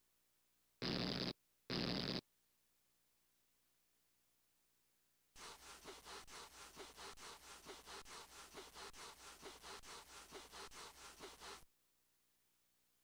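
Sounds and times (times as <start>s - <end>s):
cartoon feet scuffing on carpet: 5.4s - 11.6s.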